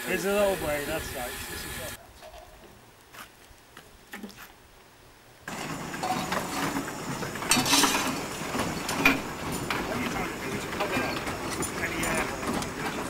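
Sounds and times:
steam hissing from locomotive: 0.0s - 2.0s, 5.5s - 13.0s.

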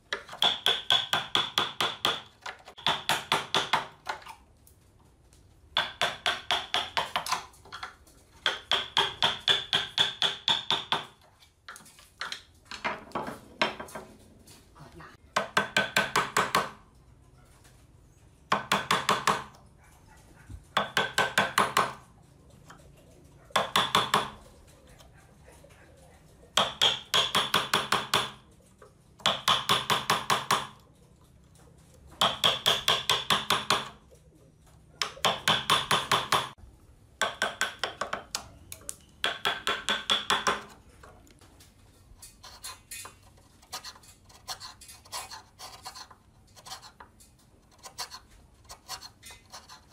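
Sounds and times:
hammer tapping chisel: 0.1s - 4.3s, 5.8s - 12.4s, 15.4s - 16.8s, 18.5s - 19.6s, 20.8s - 22.0s, 23.6s - 24.4s, 26.6s - 28.5s, 29.2s - 30.9s, 32.2s - 34.0s, 35.0s - 36.6s, 37.2s - 40.8s.

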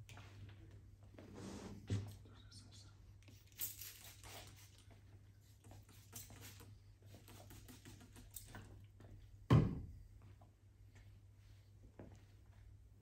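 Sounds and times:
spray bottle hissing: 3.4s - 4.8s, 5.8s - 8.3s.

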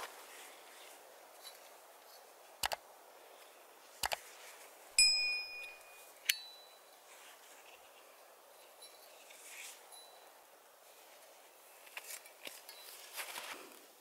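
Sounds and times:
mouse clicks: 2.6s - 2.8s, 4.0s - 4.2s
bell-like ding: 5.0s - 6.9s.

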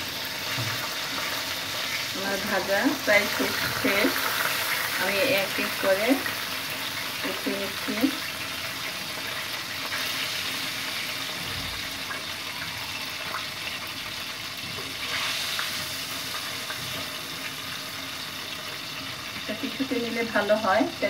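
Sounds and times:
food frying in hot oil: 0.0s - 21.0s.

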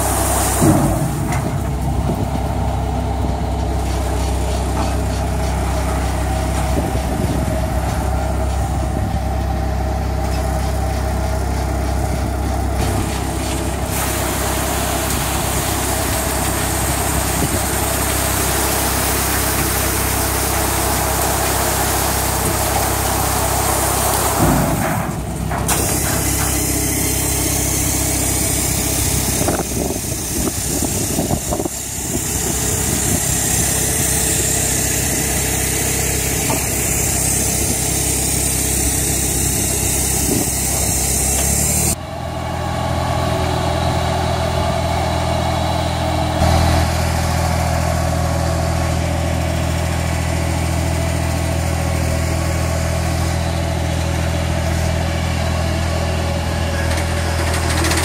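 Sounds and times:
olives pouring rushing hiss: 0.0s - 1.2s, 13.3s - 24.8s
harvester engine hum and rattle: 0.0s - 58.0s.

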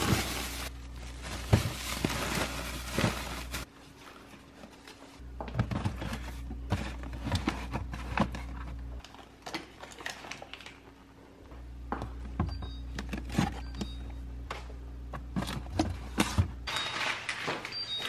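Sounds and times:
plastic bags rustling: 0.0s - 5.2s.

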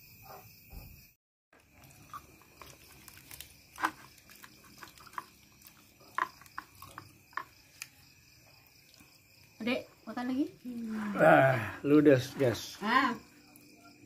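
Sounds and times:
high insect chirring: 0.1s - 14.0s
small clicks and taps on a plate: 6.0s - 7.9s.

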